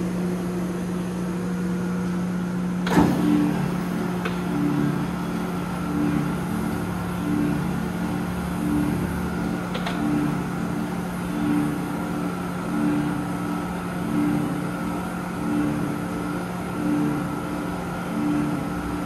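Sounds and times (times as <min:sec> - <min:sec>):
motor and flywheel hum: 0:00.0 - 0:19.0
punch press ram cycling: 0:02.8 - 0:07.2.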